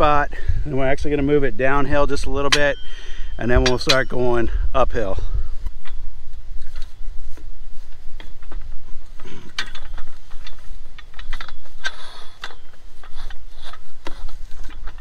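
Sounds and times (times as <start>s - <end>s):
metal stand legs clanking: 2.1s - 4.5s, 7.9s - 15.0s.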